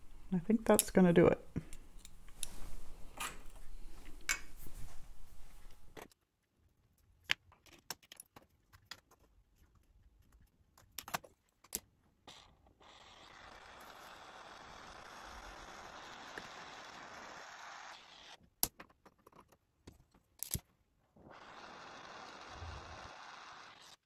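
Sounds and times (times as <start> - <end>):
torch hissing: 12.8 - 18.4, 21.2 - 24.0.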